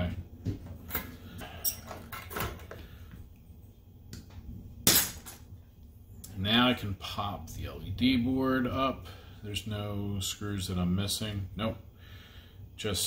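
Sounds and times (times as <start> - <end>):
hand tools clicking and scraping: 0.9 - 2.8.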